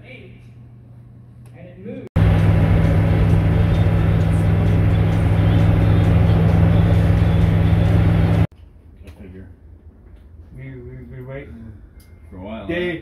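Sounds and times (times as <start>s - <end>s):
diesel engine drone inside cabin: 2.1s - 8.5s.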